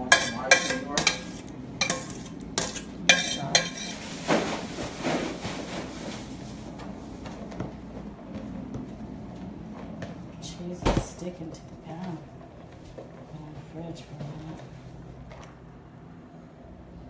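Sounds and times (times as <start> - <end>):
dishes and utensils clinking: 0.0 - 4.7.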